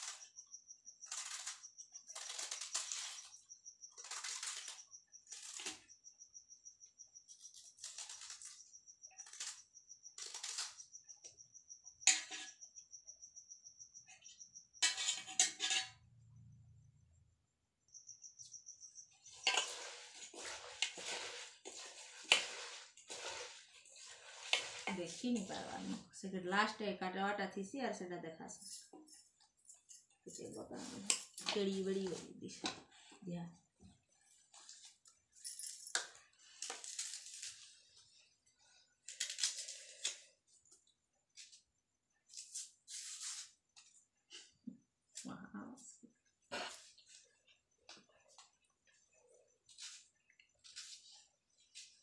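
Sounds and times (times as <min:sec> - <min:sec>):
food scraping in steel pot: 0:12.0 - 0:12.6, 0:14.8 - 0:16.1, 0:19.2 - 0:26.1
bangles jingling: 0:35.4 - 0:36.1.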